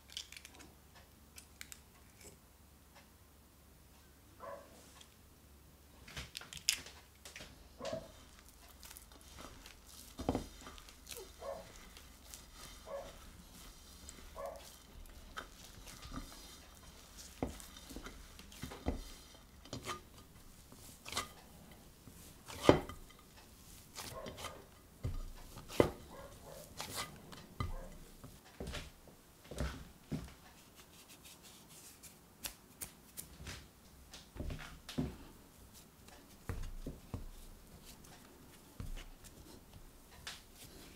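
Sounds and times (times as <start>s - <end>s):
dough pressing and crumbling: 6.0s - 40.9s.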